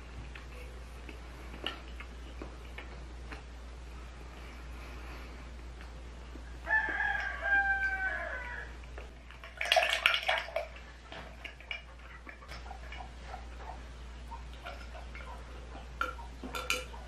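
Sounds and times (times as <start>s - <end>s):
rooster crowing: 6.6s - 8.8s
glass clinking: 16.0s - 17.0s.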